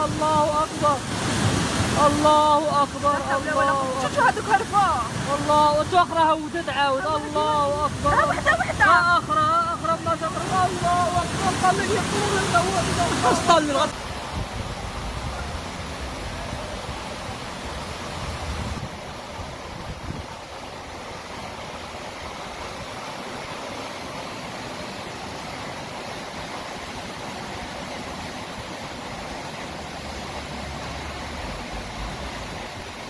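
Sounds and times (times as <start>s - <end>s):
floodwater rushing: 0.0s - 33.0s.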